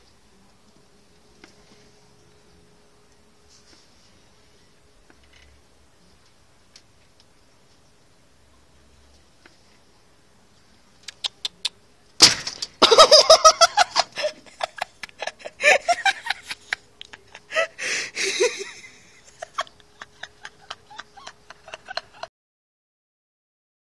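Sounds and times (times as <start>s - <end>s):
person laughing hard: 12.8s - 22.3s.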